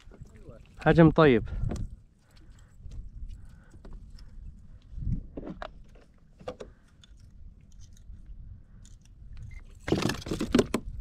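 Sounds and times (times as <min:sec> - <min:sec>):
faint clicks and knocks of handling: 0:01.7 - 0:09.8.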